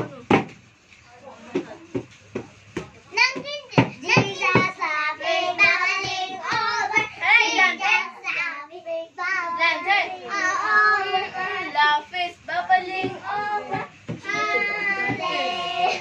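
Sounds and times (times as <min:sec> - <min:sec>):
children singing together: 0:04.1 - 0:08.4, 0:09.2 - 0:11.8, 0:12.8 - 0:16.0.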